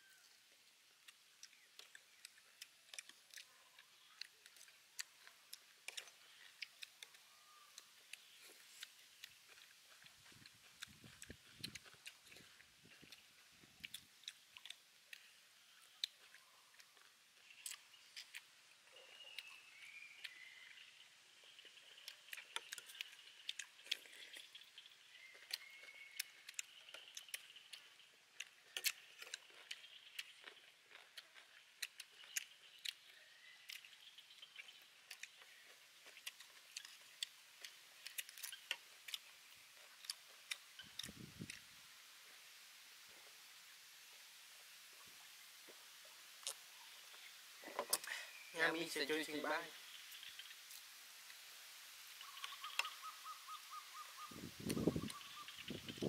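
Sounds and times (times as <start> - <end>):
chewing: 1.0 - 42.4, 45.2 - 48.5.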